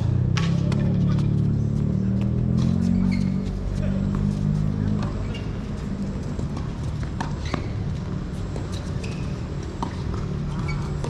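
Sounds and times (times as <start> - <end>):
ball bouncing on hard court: 0.2 - 11.0
tennis ball struck by rackets: 9.8 - 10.7.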